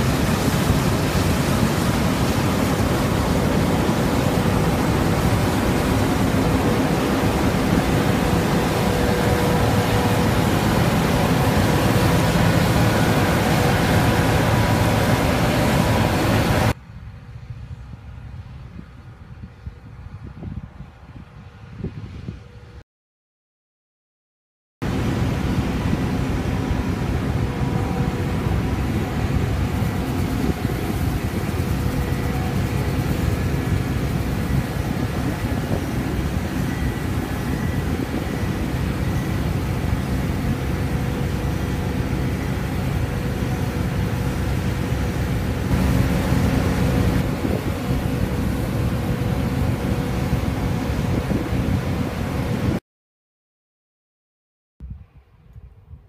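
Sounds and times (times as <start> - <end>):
combine harvester droning: 0.0 - 16.8, 24.8 - 52.8
faint machinery whines: 0.0 - 16.8, 24.8 - 52.8.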